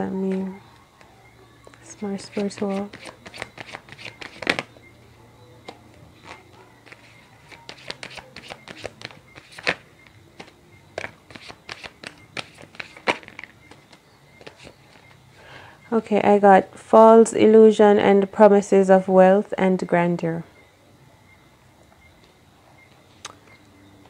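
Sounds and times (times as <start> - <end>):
cards being shuffled by hand: 2.2 - 4.7, 6.2 - 15.2.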